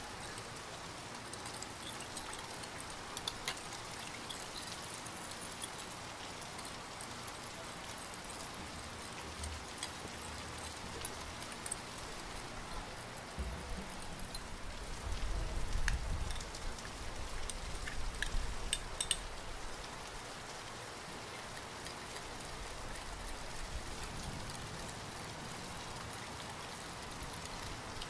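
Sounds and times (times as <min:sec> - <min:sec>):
steady hiss: 0:00.0 - 0:28.0
spoon clinking against glass bowl: 0:18.7 - 0:19.2.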